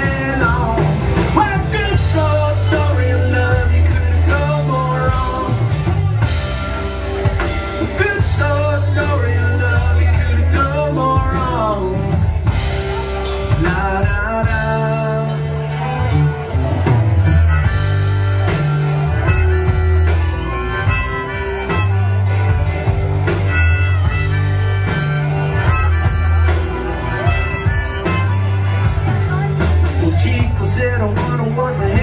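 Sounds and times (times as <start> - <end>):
live rock band playing: 0.0 - 32.0
lead guitar bending pitch: 11.2 - 31.4.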